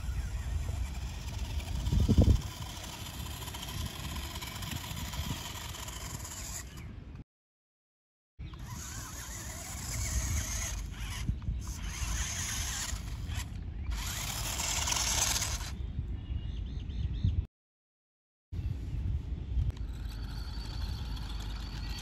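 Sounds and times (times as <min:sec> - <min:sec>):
toy truck motor whining: 0:00.0 - 0:06.9, 0:08.5 - 0:15.8, 0:19.8 - 0:22.0.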